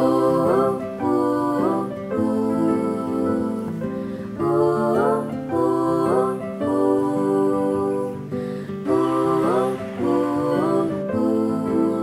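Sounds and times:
slow guitar music: 0:00.0 - 0:12.0.

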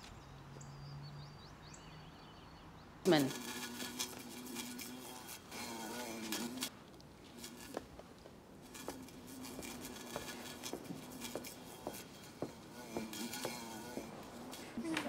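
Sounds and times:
wasp buzzing: 0:03.0 - 0:15.0.

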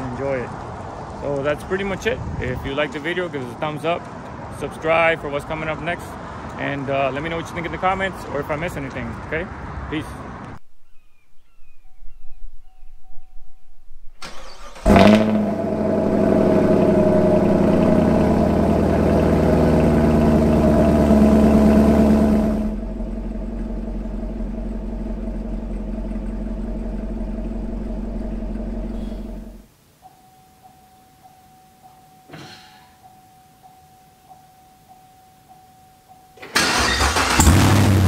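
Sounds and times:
car engine starting and idling: 0:14.2 - 0:29.7, 0:36.4 - 0:38.0.

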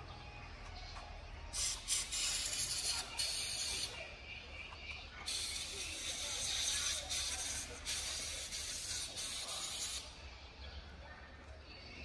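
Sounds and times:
steady hissing: 0:05.3 - 0:10.1.

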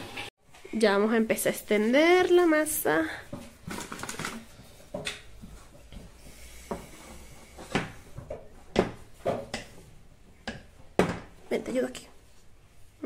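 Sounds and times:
kitchenware knocks: 0:10.4 - 0:11.3.

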